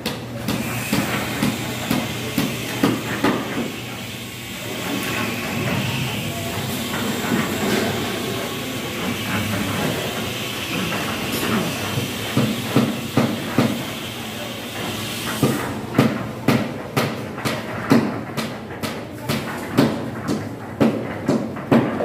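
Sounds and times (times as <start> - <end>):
rushing mechanical noise: 0.4 - 18.8
sharp knocks: 15.4 - 22.0.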